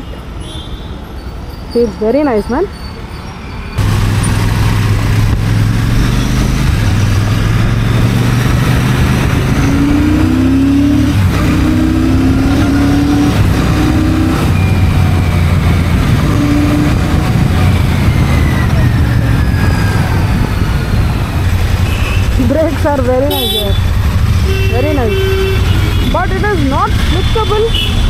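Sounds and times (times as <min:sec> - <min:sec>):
motorcycle engine accelerating: 0:03.8 - 0:25.0.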